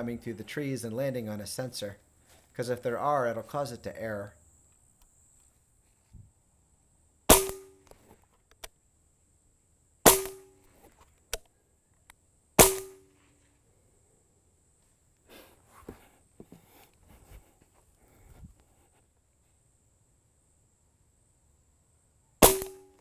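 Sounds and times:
handling rustle: 0:05.3 - 0:06.3, 0:14.8 - 0:19.5
air rifle shots: 0:07.3 - 0:07.8, 0:10.0 - 0:10.5, 0:12.6 - 0:13.1, 0:22.4 - 0:23.0.

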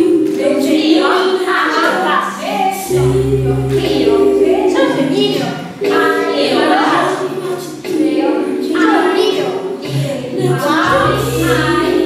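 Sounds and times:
choir singing: 0:00.0 - 0:12.0
low held bass note: 0:02.8 - 0:05.7, 0:10.9 - 0:12.0.

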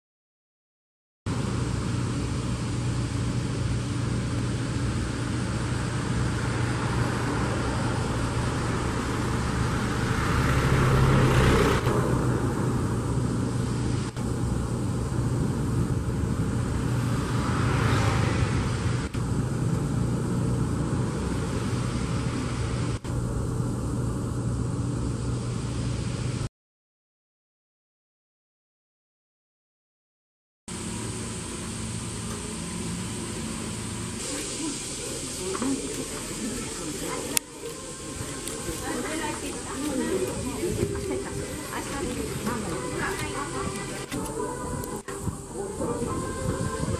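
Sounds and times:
boat engine humming: 0:01.3 - 0:26.5, 0:30.7 - 0:46.9
wind and water rushing: 0:15.2 - 0:19.7, 0:36.9 - 0:46.9.

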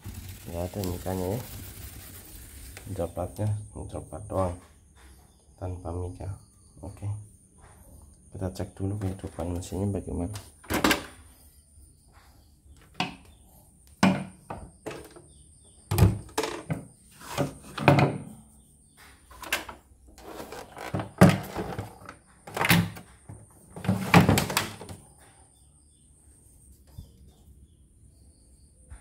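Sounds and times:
knocks on wooden workbench: 0:14.0 - 0:15.2.

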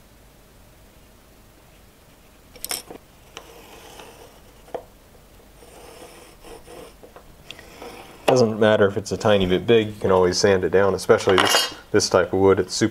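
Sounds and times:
faint scratching: 0:01.6 - 0:04.8, 0:05.4 - 0:11.3.

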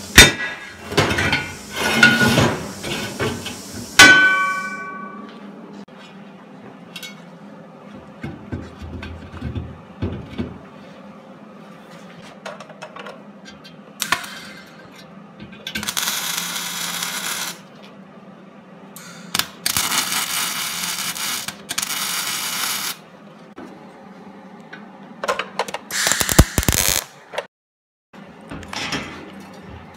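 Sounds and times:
welding arc hissing and crackling: 0:00.0 - 0:04.6, 0:15.8 - 0:17.7, 0:19.3 - 0:23.0, 0:25.9 - 0:27.2.

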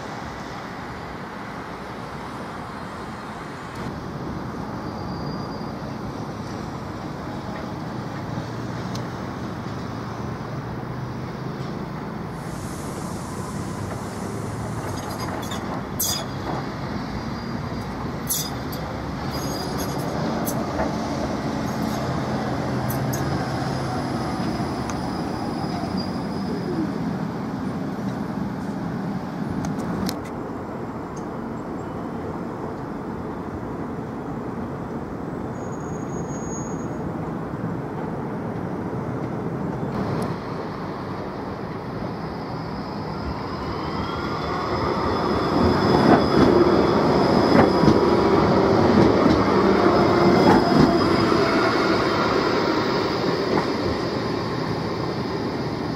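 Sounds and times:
tram rolling on track: 0:00.0 - 0:55.9
tram motor whine: 0:39.9 - 0:55.9.

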